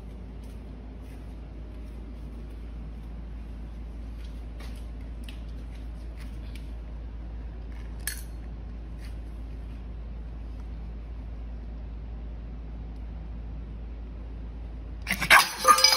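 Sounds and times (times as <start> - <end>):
steady low hum: 0.0 - 15.9
kibble clinking into metal bowl: 15.1 - 15.9.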